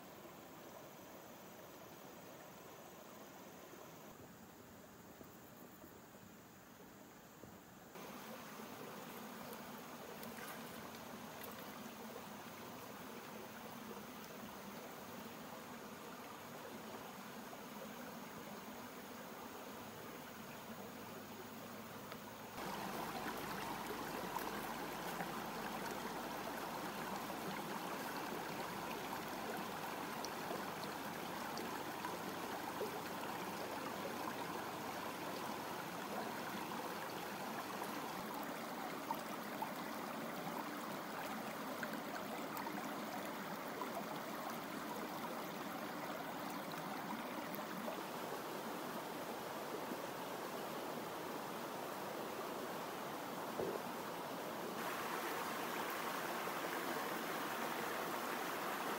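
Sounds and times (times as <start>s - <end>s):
stream babbling over stones: 22.5s - 48.2s, 54.8s - 58.9s.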